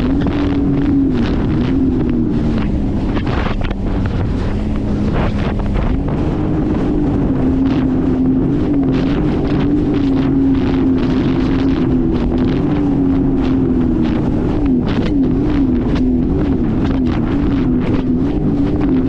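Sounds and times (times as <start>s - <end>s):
watercraft engine running: 0.0s - 19.0s
wind buffeting microphone: 0.0s - 19.0s.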